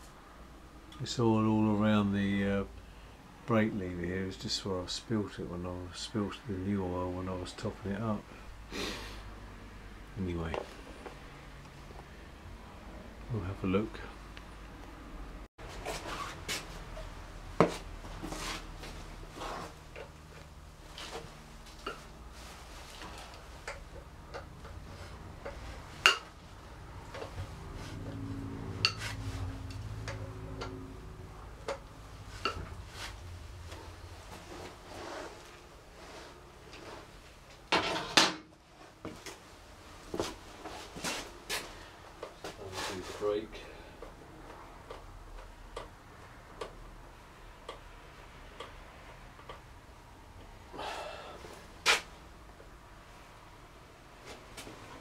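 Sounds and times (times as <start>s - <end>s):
low steady hum: 0.0s - 55.0s
scraping rustle: 15.7s - 17.0s, 32.2s - 39.4s, 42.4s - 43.4s.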